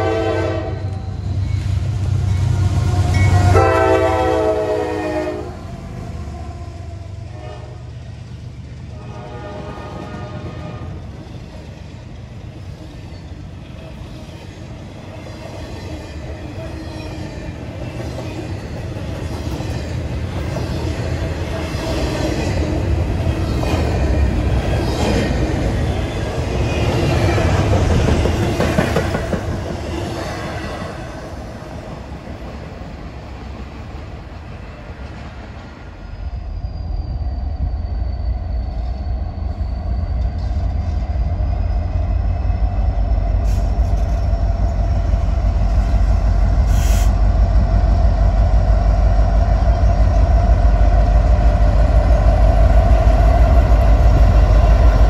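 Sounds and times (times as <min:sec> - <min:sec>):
freight train wheels rumbling: 0:00.0 - 0:55.0
faint wheel squeal: 0:36.0 - 0:41.7.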